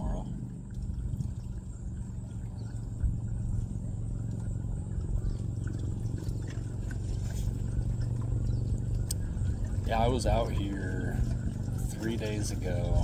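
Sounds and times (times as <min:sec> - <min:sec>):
low motor hum: 0:00.0 - 0:13.0
faint light ticks: 0:08.9 - 0:09.2.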